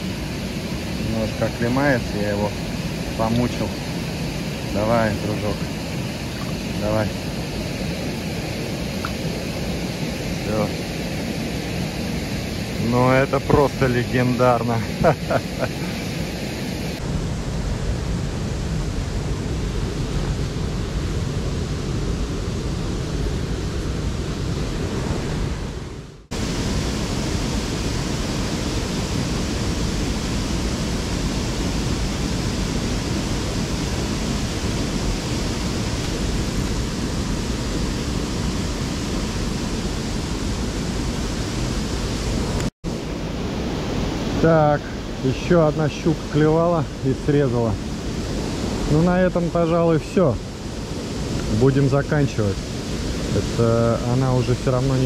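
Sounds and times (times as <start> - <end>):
water roaring through spillway: 0.0 - 25.8, 26.4 - 55.0.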